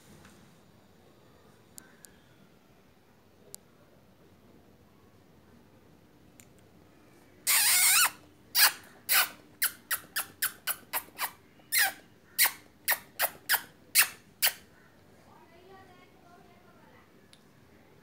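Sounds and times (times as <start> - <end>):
small animal squealing: 7.4 - 14.9.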